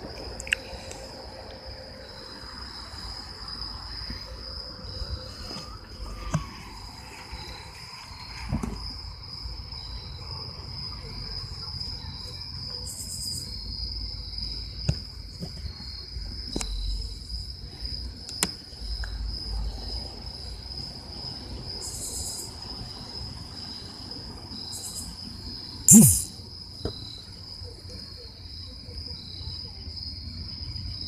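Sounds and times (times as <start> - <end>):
insects trilling: 0.0 - 31.0.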